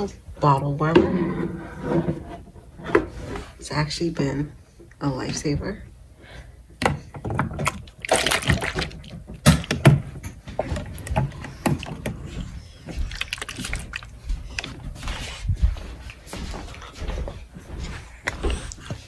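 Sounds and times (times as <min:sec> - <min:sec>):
plastic bottles knocking: 0:06.8 - 0:12.2
water sloshing: 0:07.4 - 0:15.0.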